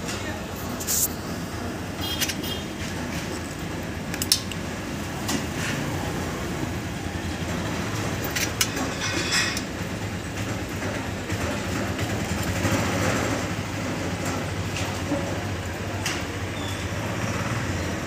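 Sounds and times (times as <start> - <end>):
metal parts clicking and clinking: 8.2 - 9.7.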